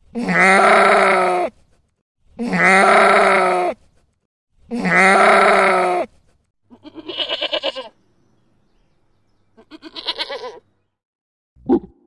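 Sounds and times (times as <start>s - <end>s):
goat bleating: 0.2s - 1.5s, 2.4s - 3.8s, 4.7s - 8.0s, 9.6s - 10.7s.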